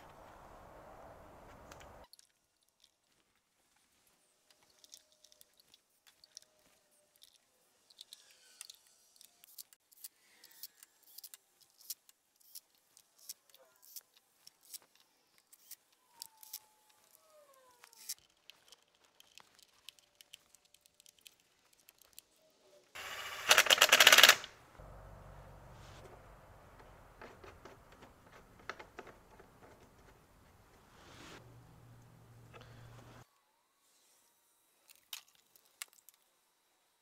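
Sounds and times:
engine parts clicking and squeaking: 4.4s - 22.4s, 25.5s - 30.9s
cordless impact driver burst: 23.0s - 24.5s.

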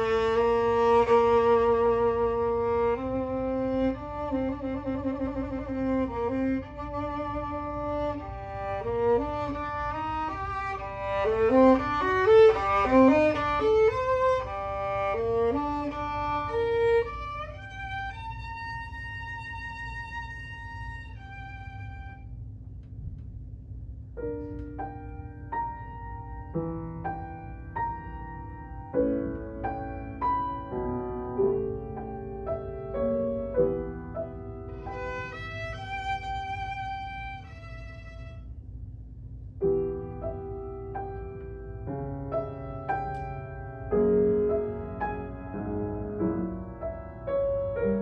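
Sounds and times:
violin playing: 0.0s - 22.2s, 34.7s - 38.5s.

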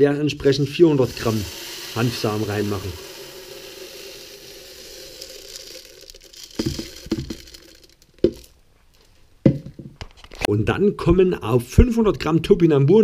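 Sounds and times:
seeds pouring into plastic jar: 0.5s - 8.6s
sharp knocks: 9.4s - 10.0s.

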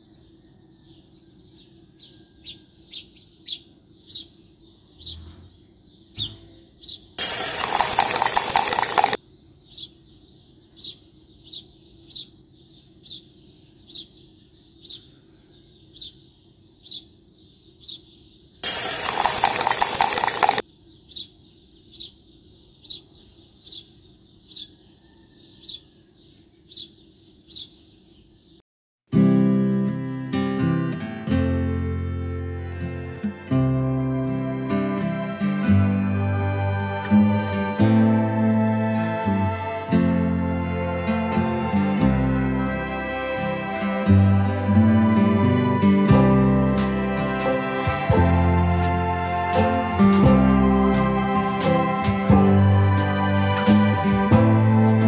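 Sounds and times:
bird chirping: 0.0s - 28.6s.

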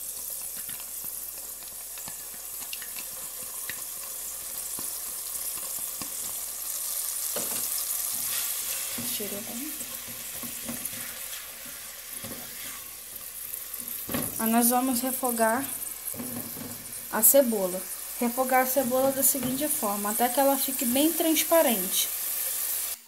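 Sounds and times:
onion sizzling in oil: 0.0s - 23.0s
spatula scraping a pan: 7.3s - 14.3s, 15.7s - 17.1s.

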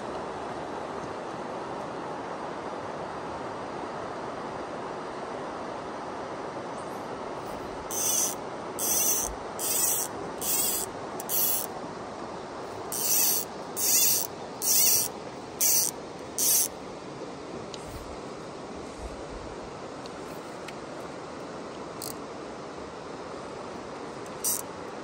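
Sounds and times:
fly reel buzzing: 7.9s - 11.7s, 12.9s - 16.7s, 24.4s - 24.6s.

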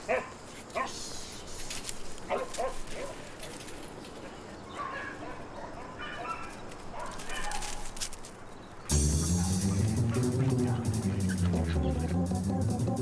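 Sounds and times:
dog barking: 0.1s - 1.0s, 2.3s - 3.2s, 4.7s - 7.8s, 9.4s - 11.0s.

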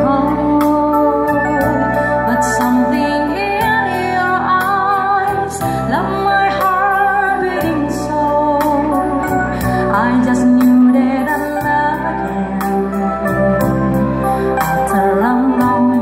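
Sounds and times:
electronic keyboard chords: 0.0s - 16.0s
woman singing into microphone: 0.0s - 16.0s.

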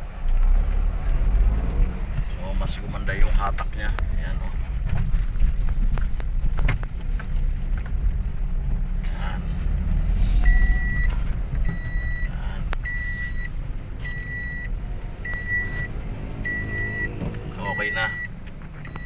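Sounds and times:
car engine and road rumble: 0.0s - 19.0s
high warning beep: 10.4s - 11.1s, 11.7s - 14.7s, 15.3s - 15.9s, 16.5s - 19.0s.

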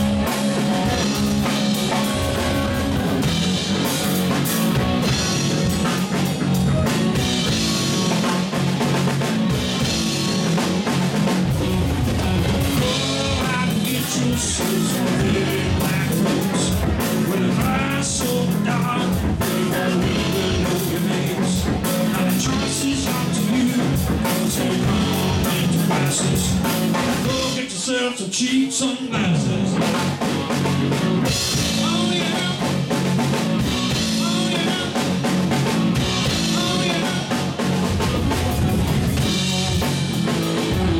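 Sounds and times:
man singing: 0.0s - 3.9s, 12.0s - 30.0s, 31.5s - 38.1s
drum kit: 0.0s - 27.8s, 29.6s - 40.9s
electric bass: 0.0s - 27.8s, 29.2s - 40.9s
electric guitar: 0.0s - 40.9s.

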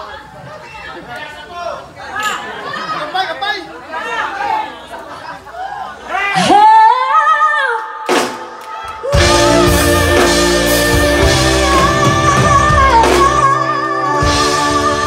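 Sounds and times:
drums: 7.8s - 15.0s
electric guitar: 9.0s - 15.0s
woman singing: 9.0s - 15.0s
bass: 9.1s - 15.0s
keyboard: 9.1s - 15.0s.

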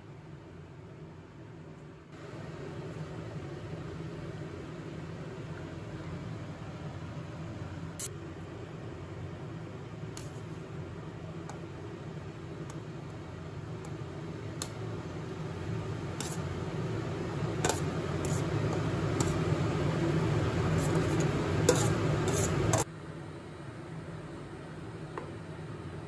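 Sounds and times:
spoon scraping a steel pan: 20.8s - 22.8s.

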